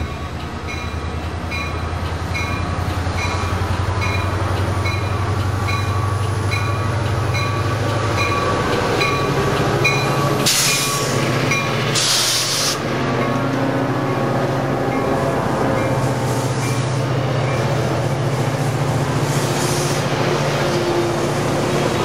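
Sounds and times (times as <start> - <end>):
locomotive bell ringing: 0.0 - 12.0, 13.0 - 17.9
diesel locomotive engine drone: 0.0 - 22.0
rushing air bursts: 10.4 - 13.0, 17.9 - 21.7.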